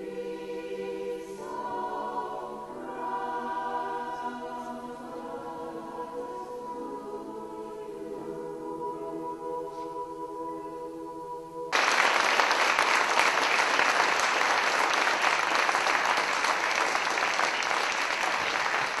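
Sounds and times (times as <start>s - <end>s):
choir holding a chord: 0.0s - 11.8s
audience applause: 11.7s - 19.0s.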